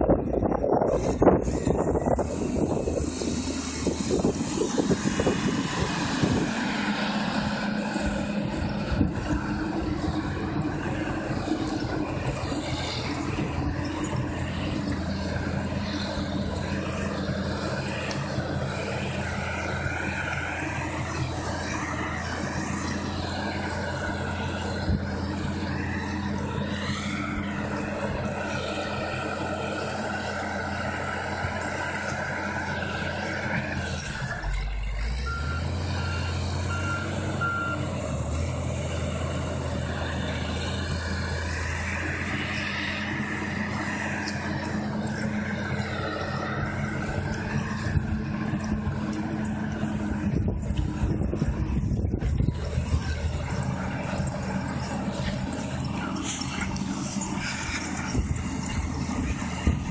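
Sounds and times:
diesel engine running: 0.0s - 59.9s
reversing alarm beeps: 35.2s - 37.9s.

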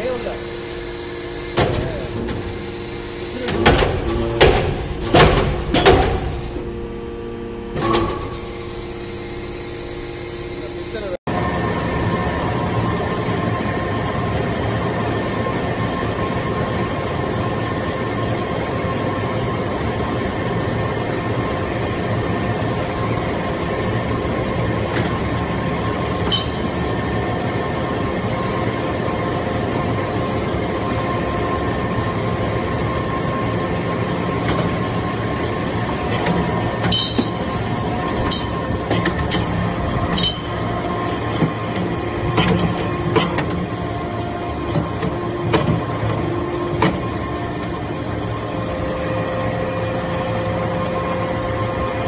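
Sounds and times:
hydraulic press humming: 0.0s - 11.2s, 23.1s - 52.0s.

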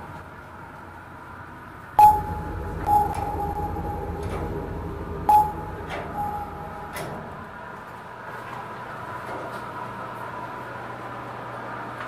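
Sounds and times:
low rumble: 2.0s - 7.8s.

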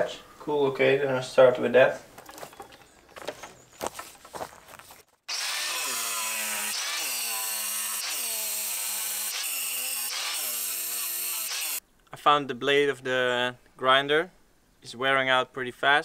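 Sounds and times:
angle grinder cutting stone: 5.3s - 11.8s.

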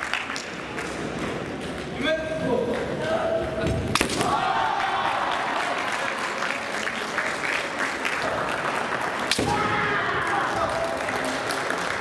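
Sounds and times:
bamboo sword strike crack: 3.9s - 4.4s
fencers shouting: 4.2s - 5.6s.

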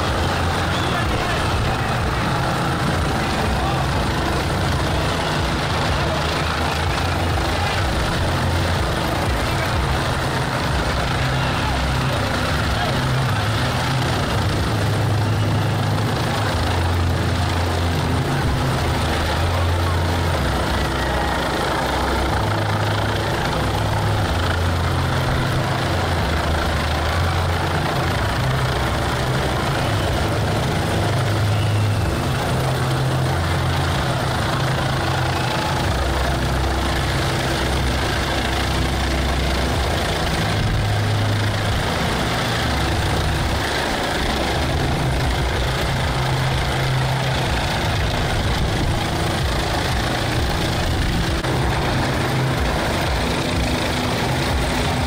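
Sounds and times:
helicopter flying overhead: 0.0s - 55.0s.

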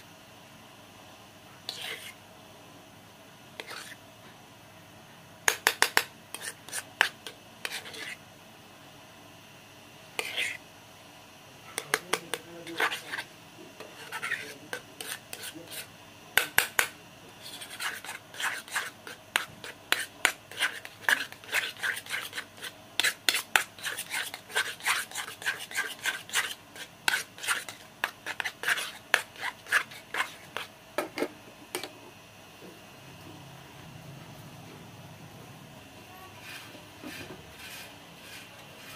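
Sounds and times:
metal spoon scraping a metal pot: 12.6s - 15.9s.

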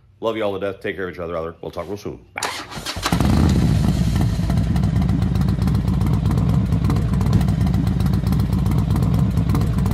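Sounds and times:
motorcycle engine running: 2.9s - 9.9s.

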